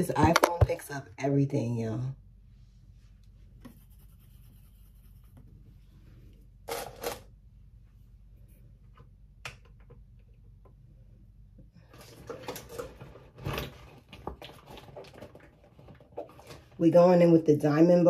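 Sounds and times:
low room hum: 0.0s - 18.0s
makeup tools handling: 0.1s - 0.8s, 6.7s - 7.4s.

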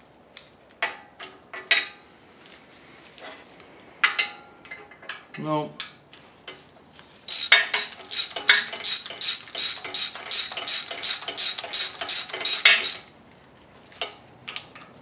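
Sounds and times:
ratchet pawl clicking: 7.3s - 13.1s.

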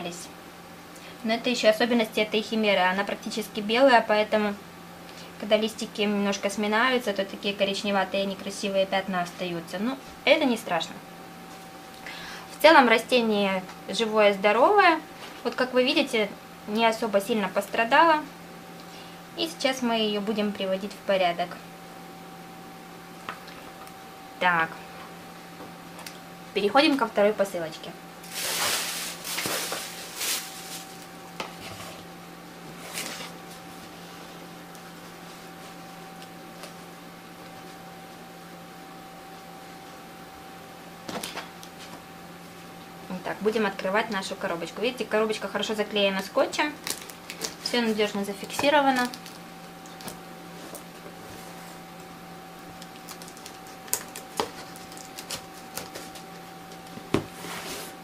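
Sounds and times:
faint steady hum: 0.0s - 58.0s
plastic bags rustling: 28.2s - 31.2s, 46.8s - 51.6s, 52.7s - 56.4s
knife cutting packing tape: 52.9s - 56.2s.

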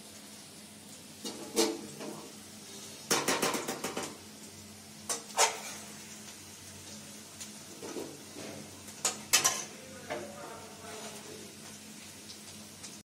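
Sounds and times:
metal spatula scraping pan: 5.1s - 5.9s.

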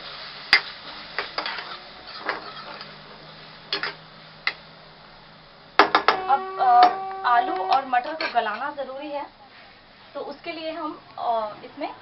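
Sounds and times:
faint sizzle: 0.0s - 12.0s
spatula scraping a pan: 1.2s - 3.0s
spatula knocking on pan: 5.8s - 8.4s.

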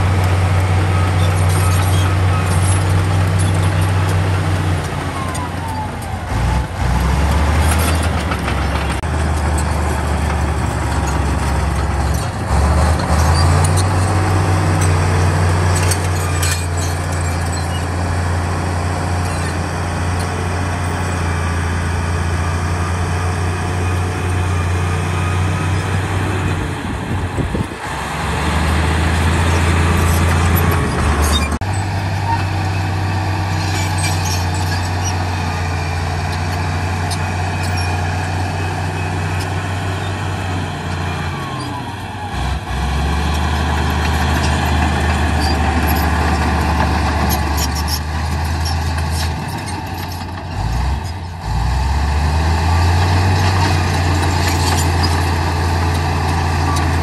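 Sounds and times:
bulldozer diesel engine running: 0.0s - 57.0s.

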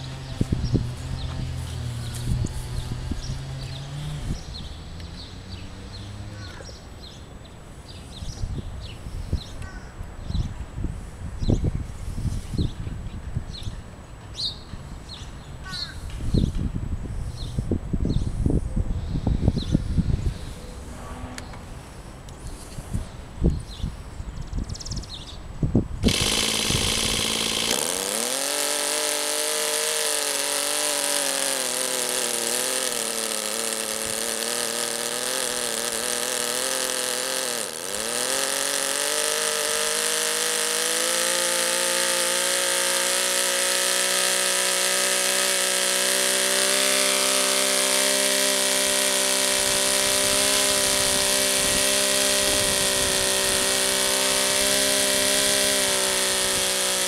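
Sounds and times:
model engine running: 26.0s - 57.0s.

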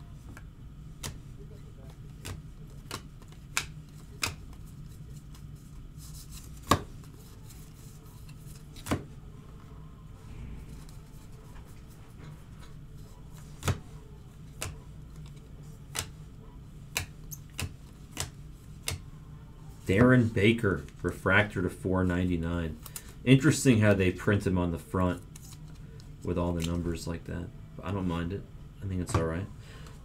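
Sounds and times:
low steady hum: 0.0s - 30.0s
cards clicking and snapping: 1.0s - 1.2s, 1.8s - 5.5s, 6.2s - 7.0s, 8.2s - 9.1s, 14.5s - 16.2s, 16.9s - 19.0s.

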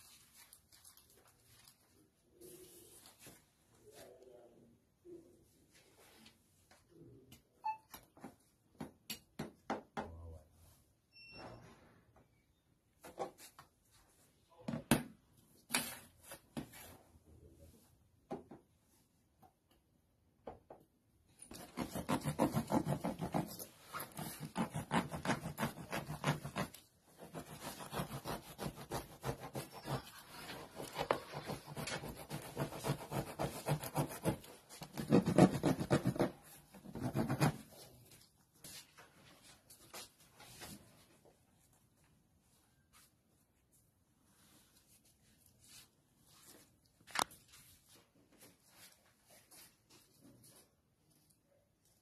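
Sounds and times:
blade sawing through plastic: 21.5s - 37.6s.

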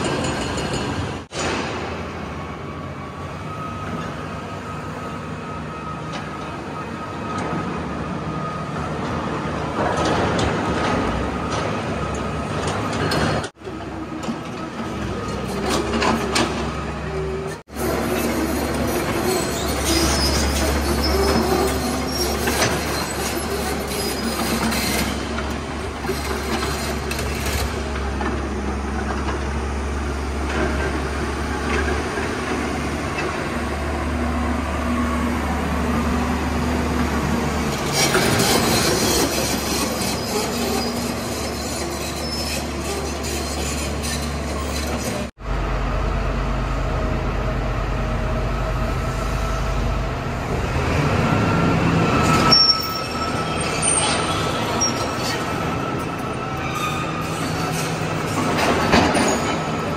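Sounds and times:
excavator engine and hydraulics: 0.0s - 59.9s
metallic squealing and clanking: 10.0s - 33.7s, 37.2s - 45.3s, 51.0s - 59.9s.

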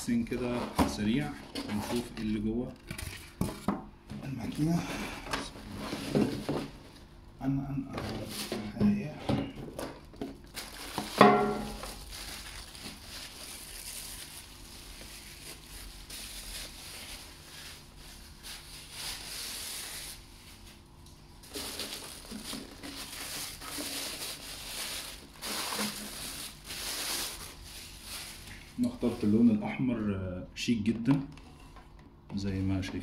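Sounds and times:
plastic bag crinkling: 9.7s - 29.5s.

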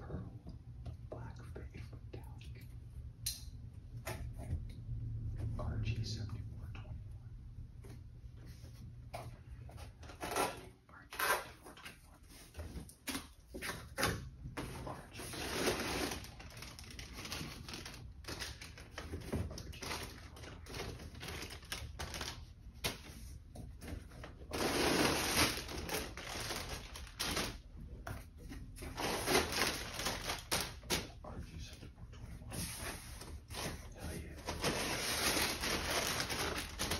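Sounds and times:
cardboard and packing rustling: 8.4s - 31.4s, 32.1s - 36.9s.

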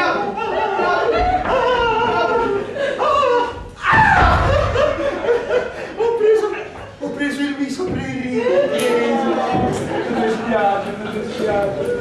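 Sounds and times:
loud exclamation: 0.0s - 4.6s
actors speaking dialogue: 6.0s - 12.0s.

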